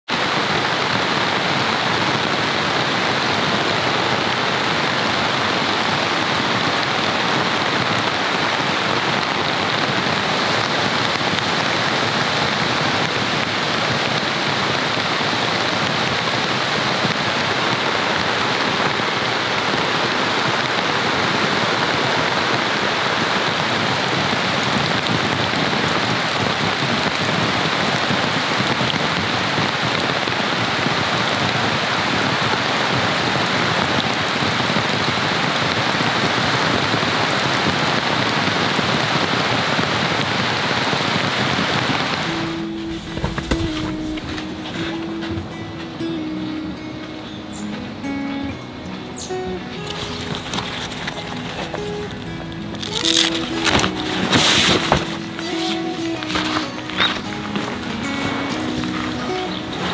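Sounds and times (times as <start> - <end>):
heavy rain on a tent: 0.0 - 59.9.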